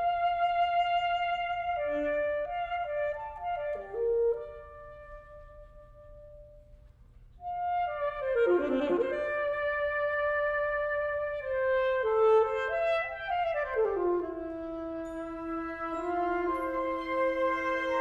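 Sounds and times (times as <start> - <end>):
alto saxophone: 0.0 - 18.0
wind band playing: 7.4 - 18.0.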